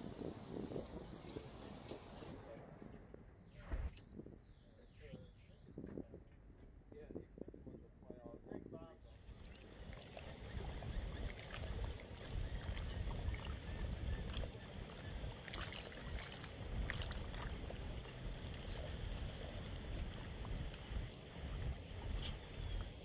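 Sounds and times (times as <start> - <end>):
wind buffeting microphone: 0.0 - 23.0
water lapping at shoreline: 9.1 - 23.0
light water splashes: 9.2 - 23.0.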